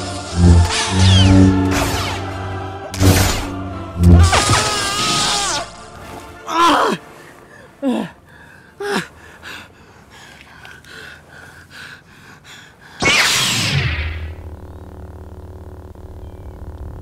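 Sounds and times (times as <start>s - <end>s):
man crying out in pain: 4.2s - 5.8s
man panting: 7.2s - 13.0s.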